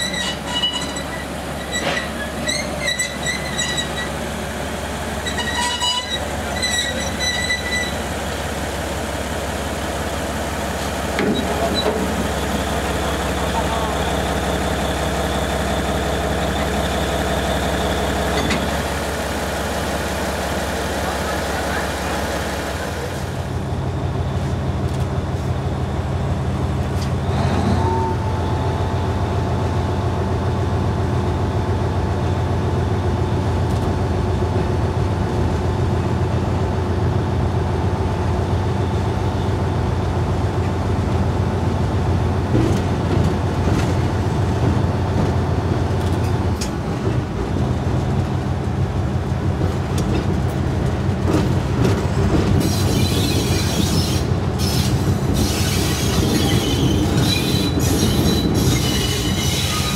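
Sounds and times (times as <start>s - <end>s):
locomotive diesel engine droning: 0.0s - 59.9s.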